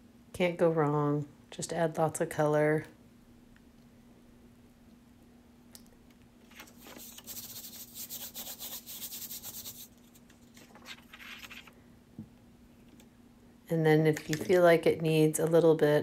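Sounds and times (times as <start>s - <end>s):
hand rubbing paper: 6.6s - 11.7s.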